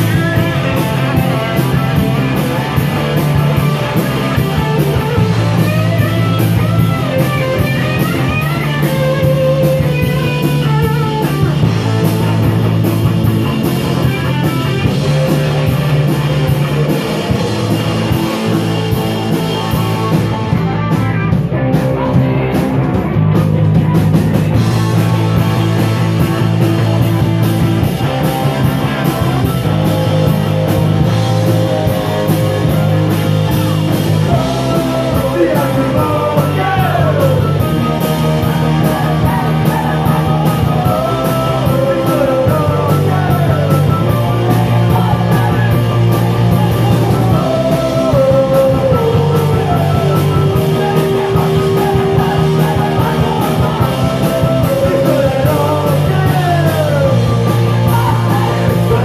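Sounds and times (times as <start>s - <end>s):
rock band playing: 0.0s - 59.0s
sliding lead guitar lines: 0.0s - 59.0s.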